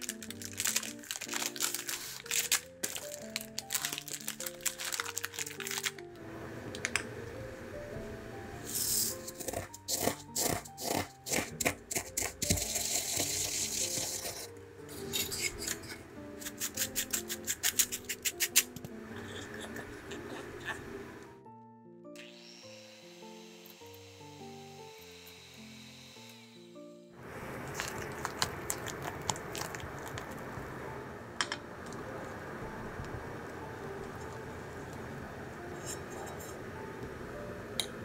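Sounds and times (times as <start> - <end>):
spatula scraping glass bowl: 8.7 - 16.0
pestle grinding in wooden mortar: 8.8 - 18.7.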